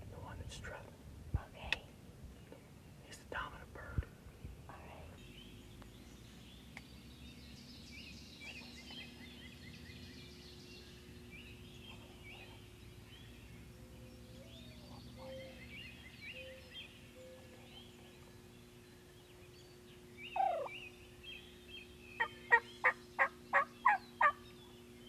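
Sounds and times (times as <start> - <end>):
steady low hum: 0.0 - 25.0
turkeys gobbling: 20.4 - 20.7, 22.2 - 24.4.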